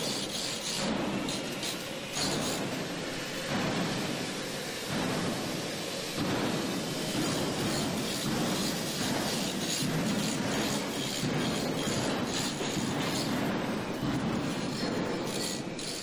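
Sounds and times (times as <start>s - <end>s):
angle grinder grinding steel: 0.0s - 2.7s, 14.5s - 16.0s.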